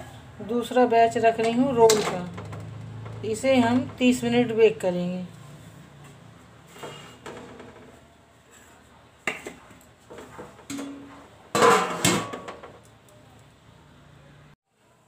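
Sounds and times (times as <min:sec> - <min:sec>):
metal lid clanging: 0:10.6 - 0:12.7
steel cookware clinking: 0:10.7 - 0:12.6.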